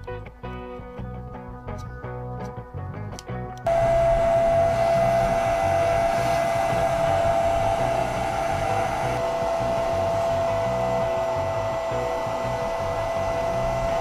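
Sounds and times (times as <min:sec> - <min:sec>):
vacuum cleaner whining: 0:03.7 - 0:14.0.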